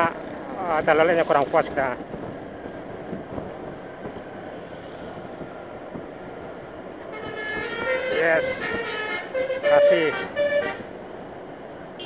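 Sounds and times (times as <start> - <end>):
wind and road noise: 0.0 - 12.0
multi-tone bus horn: 7.0 - 11.0.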